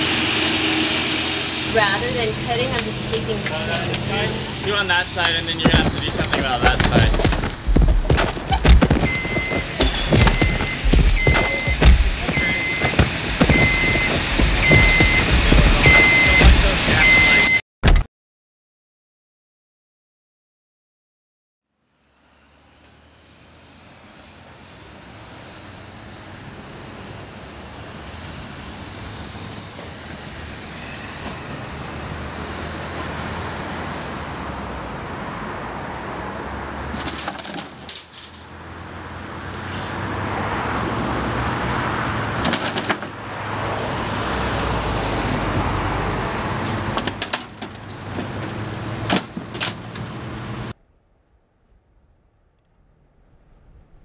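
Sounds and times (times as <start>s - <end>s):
heavy truck engines rumbling: 0.0s - 17.6s, 22.0s - 50.8s
road traffic: 0.0s - 17.6s, 21.6s - 54.0s.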